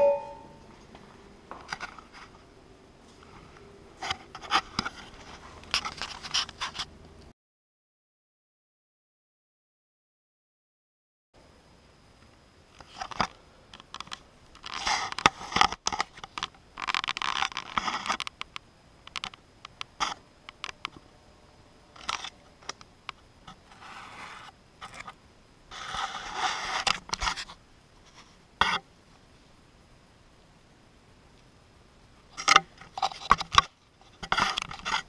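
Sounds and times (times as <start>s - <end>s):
camera handling scraping and rustling: 4.0s - 6.9s, 23.7s - 27.5s, 32.4s - 35.0s.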